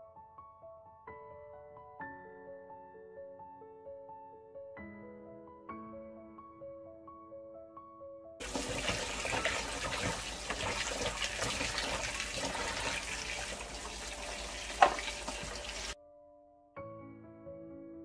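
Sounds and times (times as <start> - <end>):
soft background music: 0.0 - 18.0
tap running into bowl: 8.4 - 16.0.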